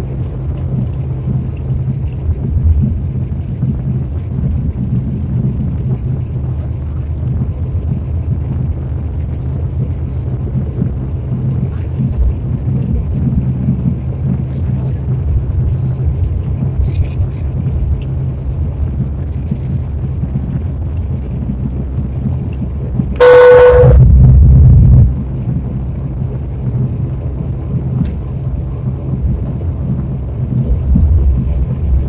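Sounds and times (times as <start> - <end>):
jet cabin rumble: 0.0 - 32.0
loud pitched tone: 23.2 - 24.3.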